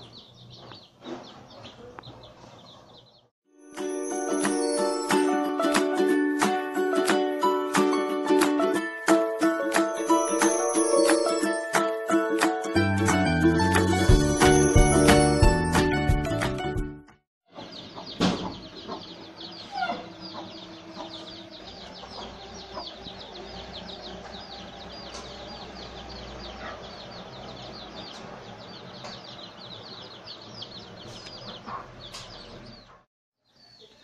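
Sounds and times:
chicks peeping: 0:00.0 - 0:03.3, 0:17.5 - 0:34.0
hen clucking: 0:17.6 - 0:33.0
sharp knock: 0:18.2 - 0:18.6.

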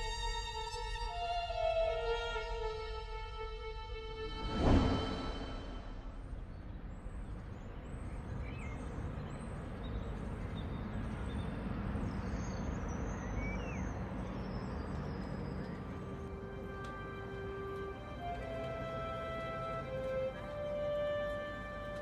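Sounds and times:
small birds chirping: 0:06.3 - 0:18.4.

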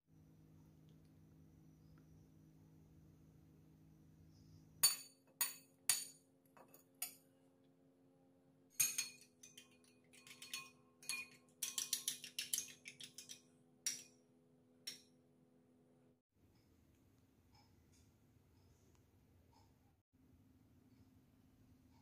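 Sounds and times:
metal spoon clinking on china: 0:04.8 - 0:07.2, 0:08.7 - 0:14.2.

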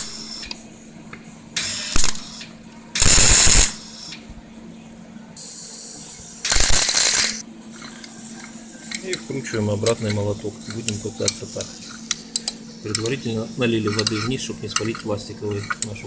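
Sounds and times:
welder crackling sizzle: 0:01.6 - 0:02.3, 0:03.0 - 0:03.8, 0:06.5 - 0:07.4.

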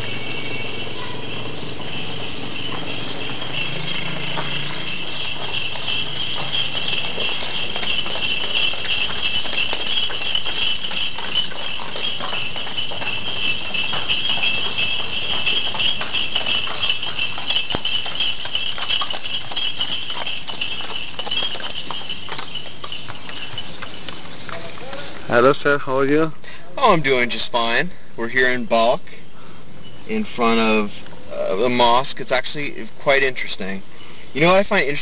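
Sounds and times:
horse hooves clip-clopping: 0:00.0 - 0:26.1.

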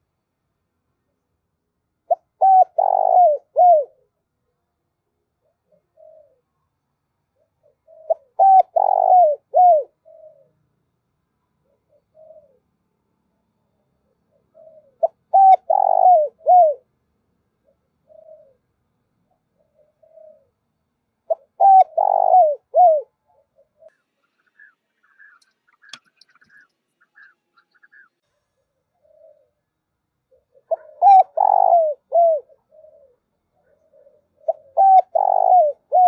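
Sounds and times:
dove cooing: 0:02.0 - 0:04.2, 0:05.4 - 0:06.6, 0:07.3 - 0:10.6, 0:11.6 - 0:12.7, 0:14.0 - 0:16.9, 0:17.6 - 0:18.7, 0:19.3 - 0:20.6, 0:21.3 - 0:36.0.

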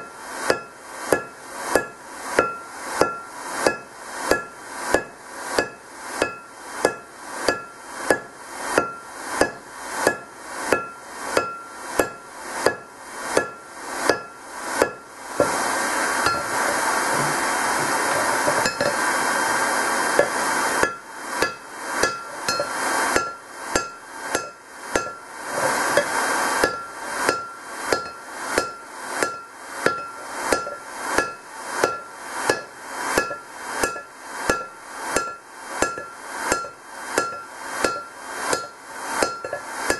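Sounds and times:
hammer striking metal on anvil: 0:00.0 - 0:15.6, 0:16.2 - 0:19.1, 0:20.1 - 0:25.3, 0:25.9 - 0:39.9
steady rushing noise: 0:04.7 - 0:32.4.

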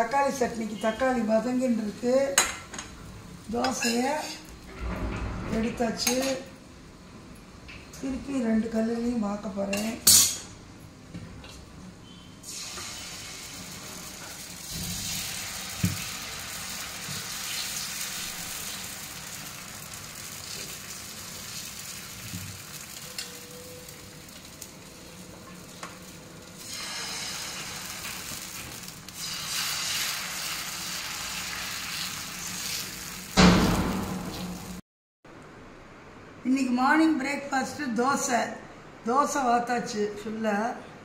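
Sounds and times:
batter sizzling on hot griddle: 0:12.4 - 0:34.8.

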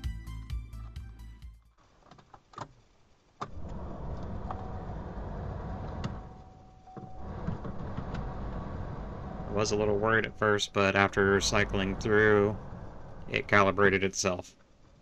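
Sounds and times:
fan whine: 0:03.4 - 0:15.0
heater blower fan rushing air: 0:03.5 - 0:14.4.

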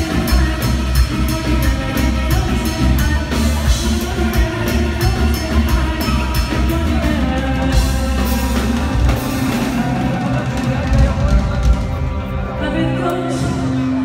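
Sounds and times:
women singing: 0:00.0 - 0:11.1, 0:12.5 - 0:14.0
drum kit with cymbal beat: 0:00.0 - 0:14.0
electric guitar: 0:00.0 - 0:14.0
heavy bass: 0:00.0 - 0:14.0.

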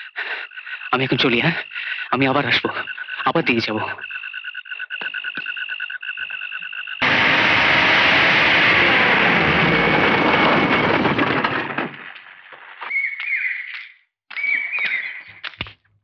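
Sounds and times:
frogs croaking: 0:00.0 - 0:07.0
engine running with deep rushing: 0:07.0 - 0:11.8.

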